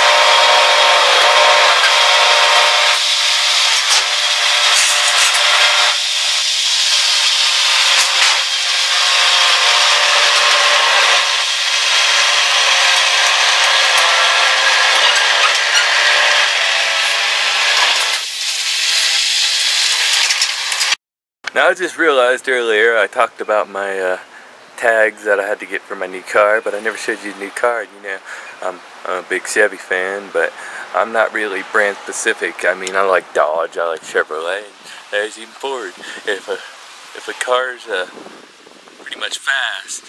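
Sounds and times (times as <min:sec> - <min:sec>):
skid-steer loader engine running: 0:00.0 - 0:18.2.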